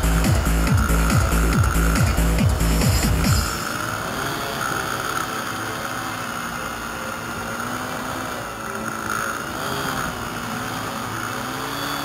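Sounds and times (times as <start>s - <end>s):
electric motor and propeller whining: 0.0s - 12.0s.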